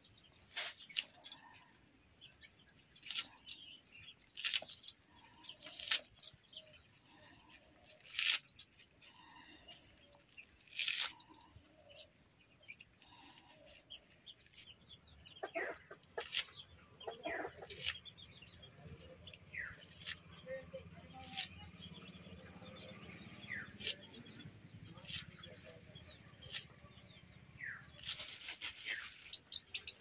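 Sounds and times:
small birds chirping: 0.0 - 30.0
crisp cuts of stalks on blade: 8.0 - 8.6, 10.6 - 11.3, 19.7 - 20.3, 21.1 - 21.6, 23.5 - 25.7, 26.4 - 26.8, 27.9 - 29.4
chickens clucking: 14.0 - 18.0.

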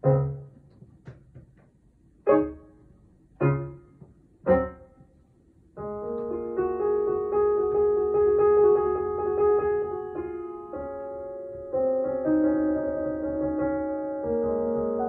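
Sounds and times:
sustained piano passage: 0.0 - 1.0, 2.3 - 5.1
piano chords: 0.0 - 15.0.

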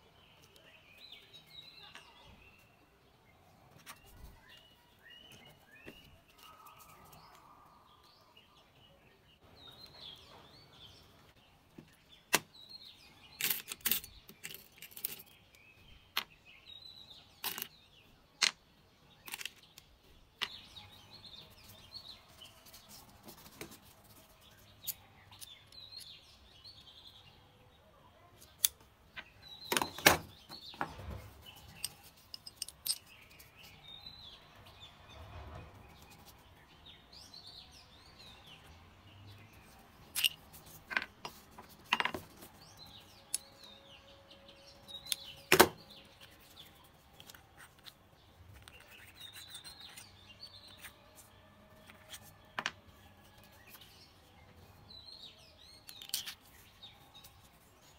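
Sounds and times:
small metal parts clicking: 13.3 - 15.4, 17.4 - 17.7, 31.7 - 33.5, 40.1 - 41.1, 55.8 - 56.5.

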